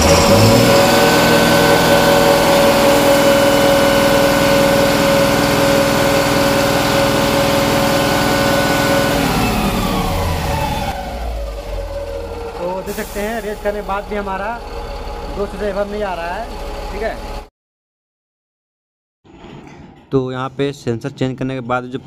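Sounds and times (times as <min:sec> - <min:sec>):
diesel truck engine revving high: 0:00.0 - 0:17.5.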